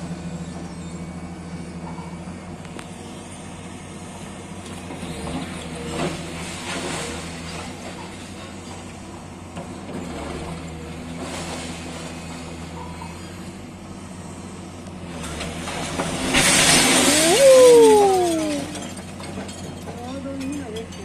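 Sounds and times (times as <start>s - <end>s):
excavator engine running: 0.0s - 21.0s
brick and rubble crashing down: 15.4s - 21.0s
falling whine: 16.4s - 19.0s.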